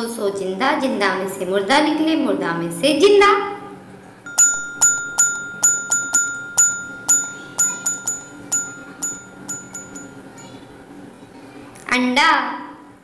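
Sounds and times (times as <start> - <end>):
steady held tone: 4.2 - 11.2
bell-like struck notes: 4.3 - 10.6.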